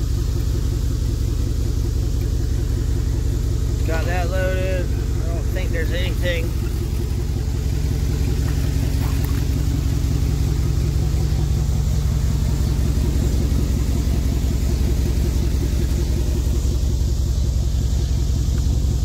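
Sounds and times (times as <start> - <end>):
truck engine droning: 0.0 - 19.0.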